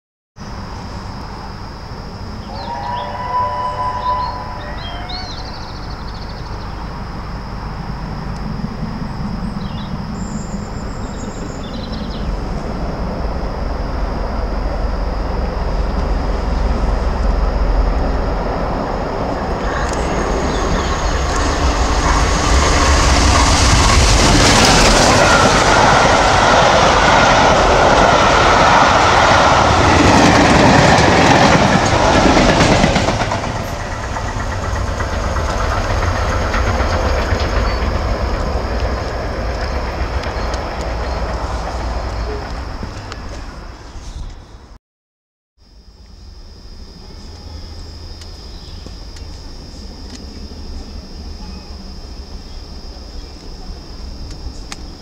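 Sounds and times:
steam locomotive passing: 0:00.5 - 0:44.7
wheels on rails: 0:15.3 - 0:44.4.

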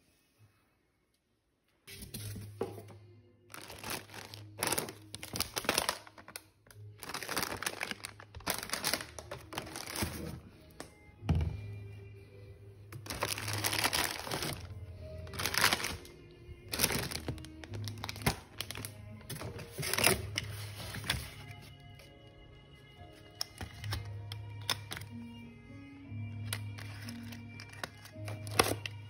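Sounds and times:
background music: 0:00.0 - 0:29.0
plastic packaging crinkling: 0:03.5 - 0:10.5, 0:13.0 - 0:22.1, 0:26.5 - 0:29.0.

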